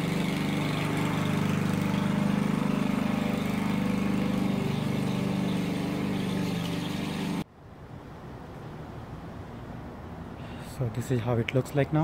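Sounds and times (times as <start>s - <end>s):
lawn mower engine running: 0.0s - 7.4s.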